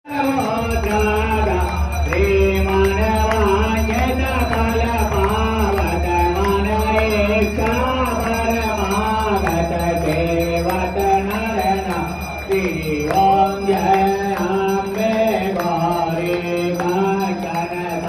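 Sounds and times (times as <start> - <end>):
person singing devotional song: 0.1 - 18.0
pulsing low accompaniment: 0.5 - 14.0.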